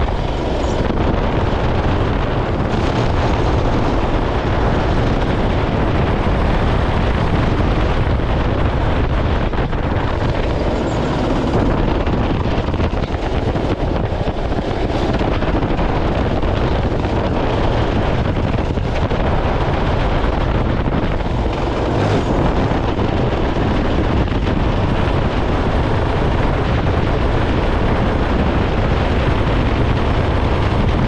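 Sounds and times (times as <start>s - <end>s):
go-kart engine running hard: 0.0s - 31.0s
wind buffeting microphone: 0.0s - 31.0s.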